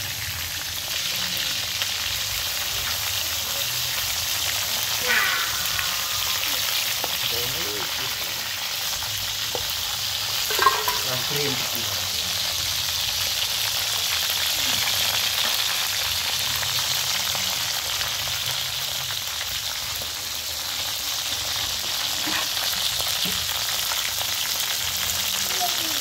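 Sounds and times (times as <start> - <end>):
frying sizzle and crackling oil: 0.0 - 26.0
metal ladle stirring in wok: 10.5 - 11.1.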